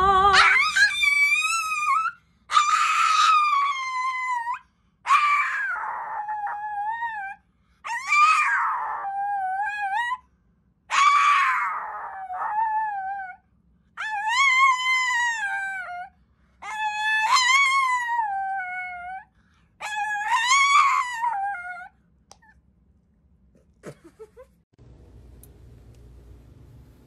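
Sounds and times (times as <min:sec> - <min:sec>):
small dog howling: 0:00.3 - 0:10.2, 0:10.9 - 0:13.4, 0:14.0 - 0:22.5.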